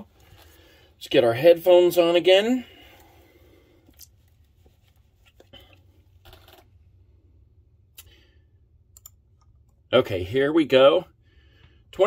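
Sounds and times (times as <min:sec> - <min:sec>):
headphones rustling and clicking: 0:00.0 - 0:01.0, 0:02.7 - 0:07.0
low steady hum: 0:00.0 - 0:12.0.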